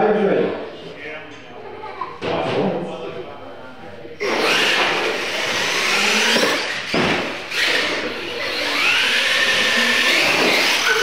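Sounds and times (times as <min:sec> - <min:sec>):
toy truck electric motors whining: 0:04.2 - 0:11.0.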